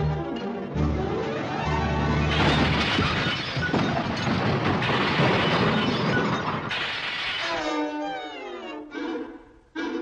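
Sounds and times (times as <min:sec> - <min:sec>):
cartoon crash smashing and clattering: 0:02.1 - 0:07.8.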